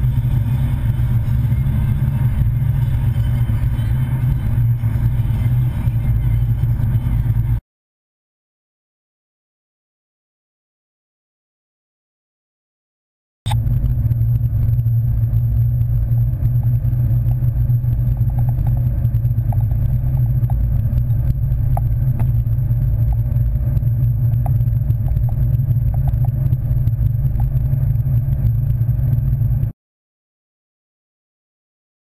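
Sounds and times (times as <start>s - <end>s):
car engine and road drone: 0.0s - 7.6s, 13.5s - 29.8s
light ticks and rattles: 13.8s - 29.7s.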